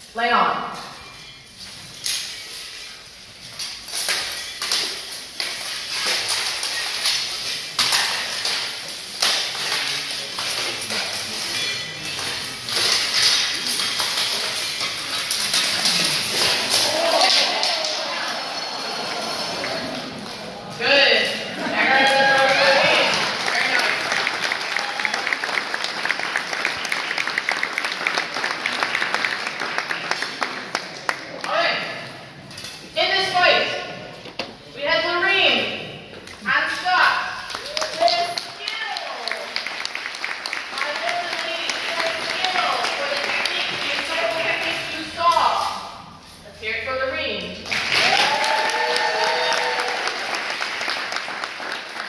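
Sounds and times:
metal weapons clashing on armor: 3.6 - 18.0
audience applauding: 15.7 - 20.5, 21.9 - 31.5, 37.5 - 44.5, 47.6 - 52.0.

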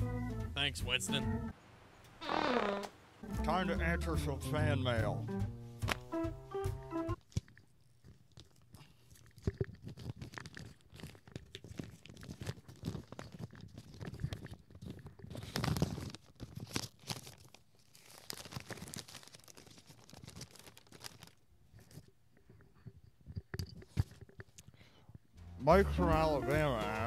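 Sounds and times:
paper envelope crinkling and tearing: 9.4 - 21.4.

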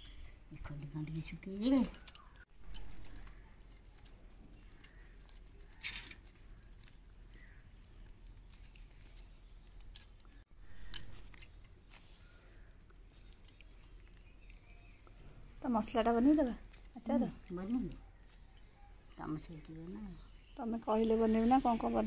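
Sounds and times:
bangles clinking: 0.0 - 22.0
small handling clicks: 1.1 - 15.2.

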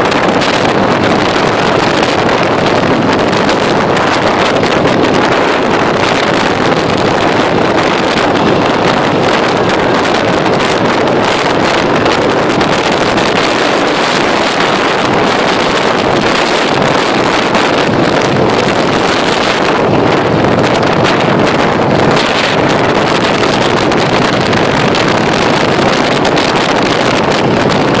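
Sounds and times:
motorcycle engine running: 0.0 - 28.0
wind rushing over microphone: 0.0 - 28.0.

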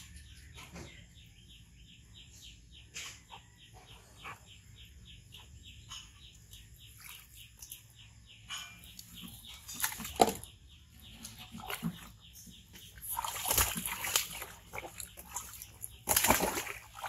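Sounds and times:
bird chirps: 0.0 - 17.0
water splashing in plastic tub: 9.0 - 17.0.

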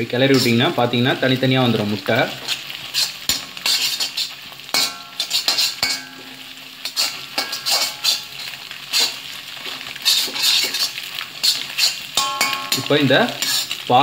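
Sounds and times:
eggs sizzling in hot oil: 0.0 - 14.0
spatula scraping pan: 1.7 - 14.0
spatula clinking on pan: 3.0 - 8.4, 10.0 - 13.8.

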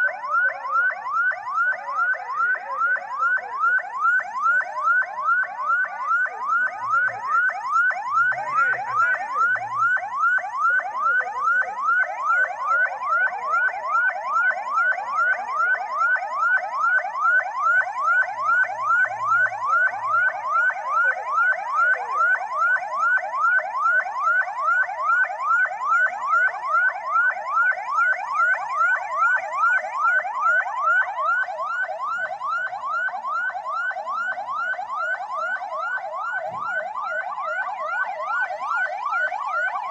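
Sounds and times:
electronic siren chirping: 0.0 - 39.9.

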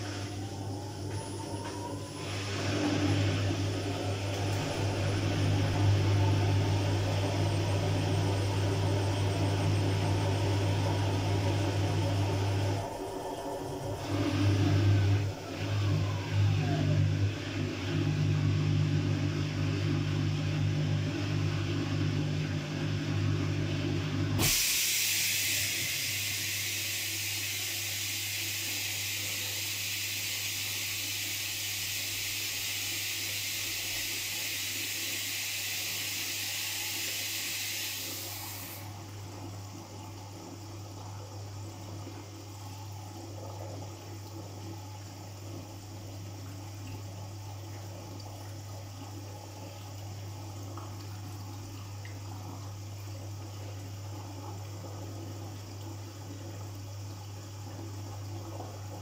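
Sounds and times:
washing machine motor hum: 0.0 - 59.0
water hissing: 24.4 - 38.9.

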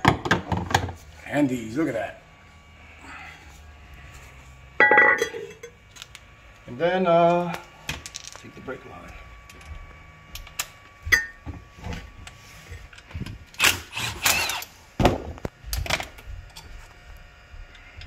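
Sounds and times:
hand tools clicking and scraping metal: 12.9 - 14.7.

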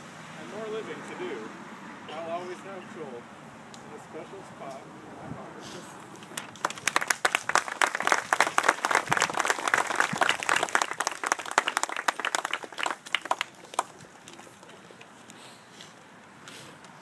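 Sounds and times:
people applauding: 6.3 - 14.3.

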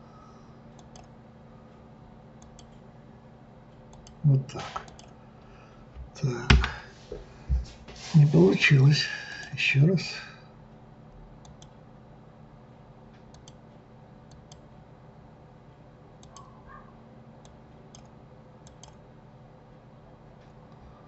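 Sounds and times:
low steady hum: 0.0 - 21.0
faint computer mouse clicks: 0.8 - 1.1, 11.4 - 11.8, 13.2 - 13.6, 16.2 - 16.5, 17.4 - 19.0.

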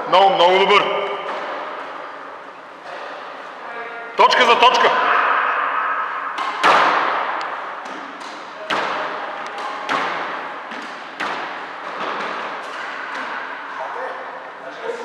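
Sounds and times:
squash ball cracking off walls: 6.4 - 13.6.

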